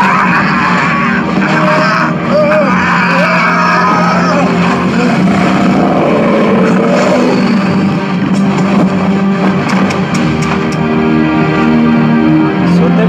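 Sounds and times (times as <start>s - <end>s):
low musical drone: 0.0s - 13.0s.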